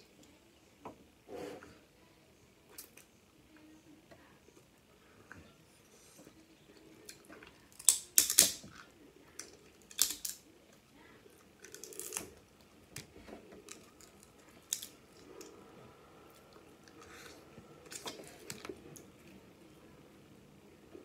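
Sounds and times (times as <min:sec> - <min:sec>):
crab shell cracking: 0:07.7 - 0:08.6, 0:09.4 - 0:10.4, 0:11.6 - 0:12.4, 0:13.6 - 0:15.5.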